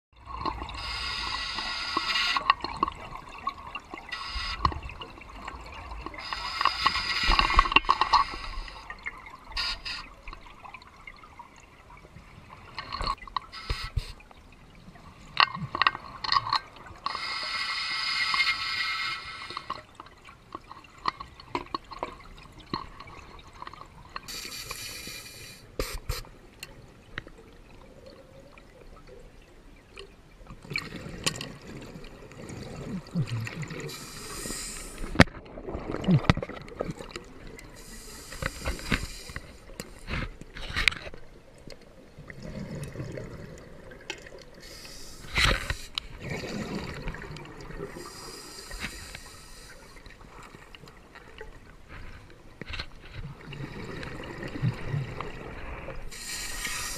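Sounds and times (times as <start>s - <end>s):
exhaled air bubbling: 0.2s - 17.1s, 30.6s - 40.5s, 41.2s - 52.0s
breathing regulator hissing: 0.8s - 2.4s, 4.1s - 4.7s, 6.2s - 8.9s, 13.6s - 14.2s, 17.1s - 19.7s, 24.3s - 26.3s, 33.9s - 35.2s, 37.8s - 39.7s, 44.6s - 46.0s, 48.0s - 50.0s, 56.1s - 56.9s.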